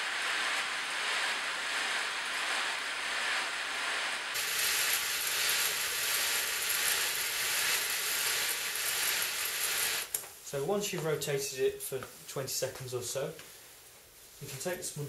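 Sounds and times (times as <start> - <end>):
bicycle freehub clicking: 0.2 - 10.2.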